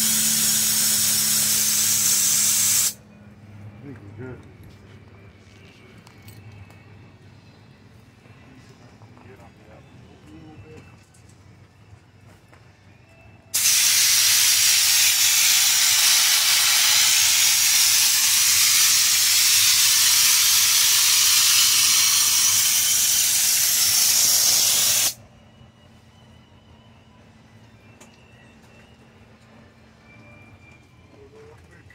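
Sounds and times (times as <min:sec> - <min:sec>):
spray gun hissing: 0:00.0 - 0:03.0, 0:13.6 - 0:25.2.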